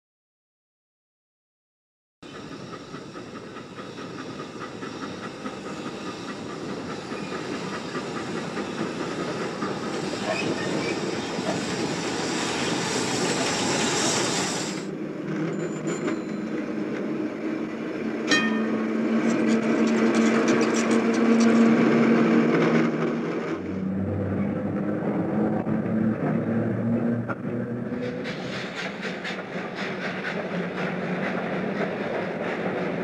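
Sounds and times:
steam locomotive chuffing: 2.2s - 24.3s, 24.9s - 33.0s
street tram running: 2.2s - 33.0s
rail clatter: 18.2s - 23.6s.

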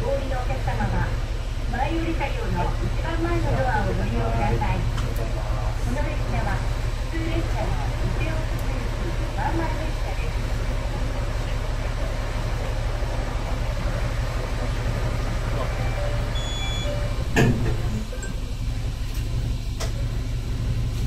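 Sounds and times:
diesel railcar idling: 0.0s - 21.0s
loud clunk: 17.3s - 18.0s.

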